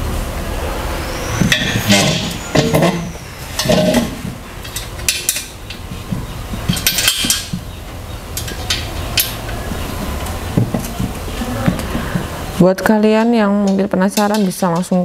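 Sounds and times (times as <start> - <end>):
steady low hum: 0.0 - 15.0
metal clinks and rattles: 3.6 - 7.6.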